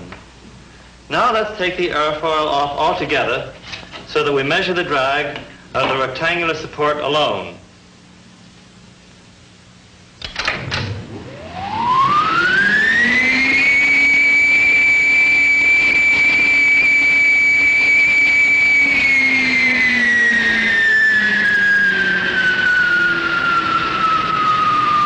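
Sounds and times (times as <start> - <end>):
blower clunks: 10.2 - 25.0
wind tunnel blower whine: 10.6 - 25.0.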